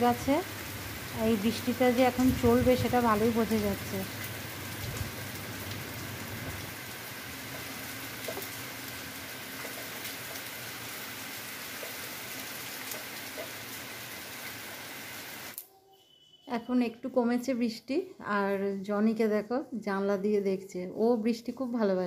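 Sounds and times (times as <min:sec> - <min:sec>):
heavy rain pouring: 0:00.0 - 0:15.6.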